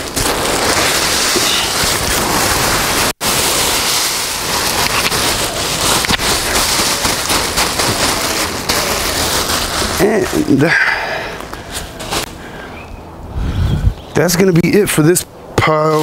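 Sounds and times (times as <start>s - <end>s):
plastic bag rustling and crinkling: 0.0s - 10.8s, 11.4s - 12.4s.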